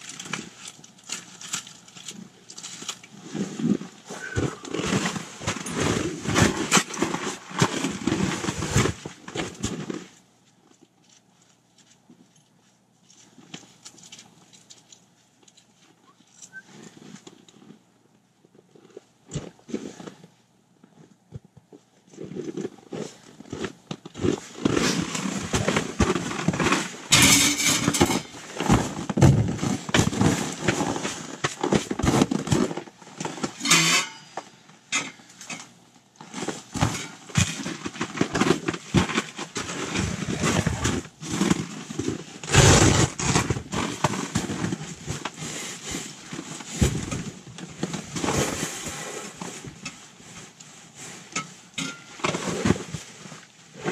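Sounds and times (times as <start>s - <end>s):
scraping and rustling: 0.0s - 53.9s
metal stove parts knocking and clattering: 27.1s - 28.4s, 51.4s - 52.2s.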